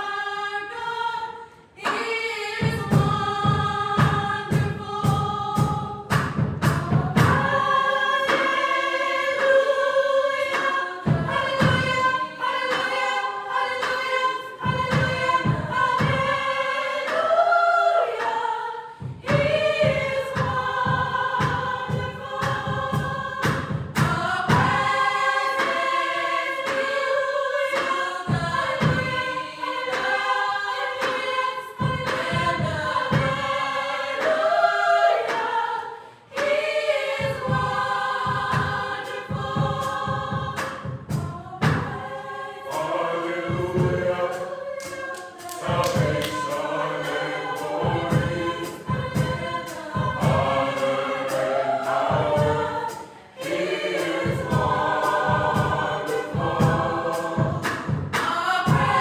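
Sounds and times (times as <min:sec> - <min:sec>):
gospel choir singing: 0:00.0 - 0:59.0
steady low beat: 0:36.6 - 0:59.0.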